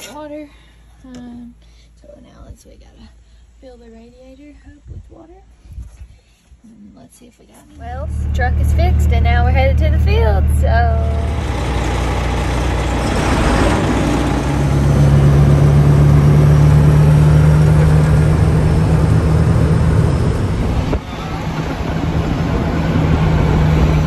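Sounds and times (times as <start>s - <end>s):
truck engine drone from cab: 7.8s - 24.0s.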